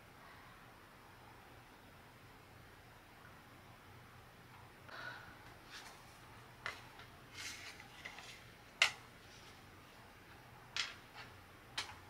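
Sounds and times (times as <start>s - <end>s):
papery rustle of card: 5.7s - 9.6s.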